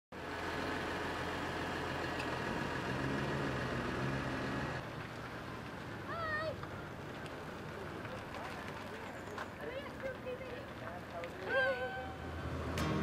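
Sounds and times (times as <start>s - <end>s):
tractor diesel engine running: 0.2s - 8.4s.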